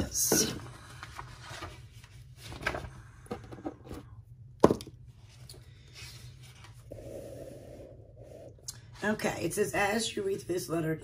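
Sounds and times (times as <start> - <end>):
items knocking on wooden table: 4.6 - 5.0.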